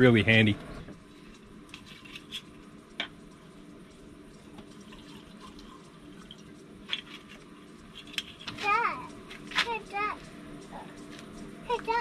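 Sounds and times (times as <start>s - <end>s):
microwave humming: 0.0s - 12.0s
liquid pouring: 4.4s - 7.5s.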